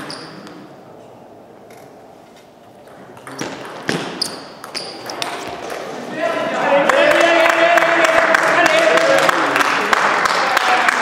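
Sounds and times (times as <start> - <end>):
shoes squeaking on floor: 0.0 - 0.7, 2.8 - 6.0.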